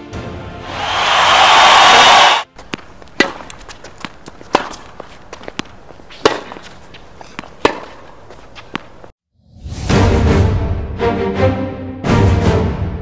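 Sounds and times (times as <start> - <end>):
tennis balls bouncing on court: 2.5 - 9.1
tennis balls struck with rackets: 2.6 - 9.1.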